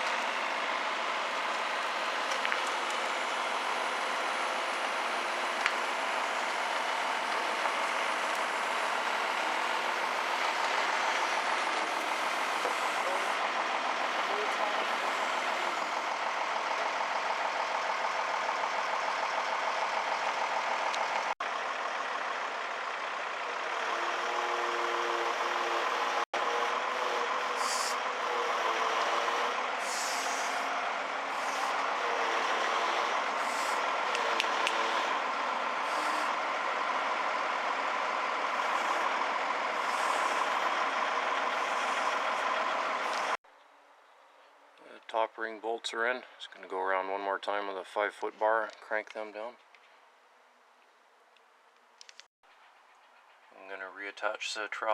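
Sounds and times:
diesel engine running: 0:00.0 - 0:43.4
short hissing bursts: 0:27.6 - 0:28.0, 0:29.8 - 0:30.7.

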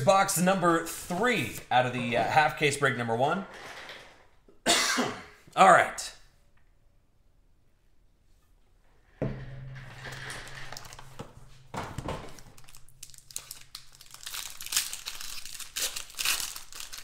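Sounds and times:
wrapper crinkling and rustling: 0:12.3 - 0:17.0.

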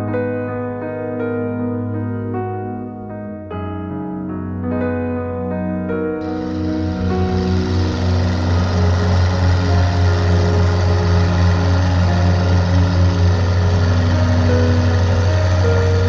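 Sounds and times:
soft piano music: 0:00.0 - 0:16.0
boat engine running: 0:06.2 - 0:16.0.

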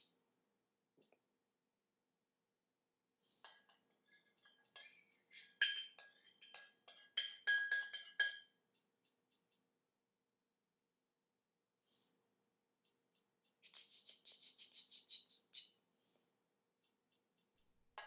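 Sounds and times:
spoon clinking against bowl: 0:03.4 - 0:08.6.

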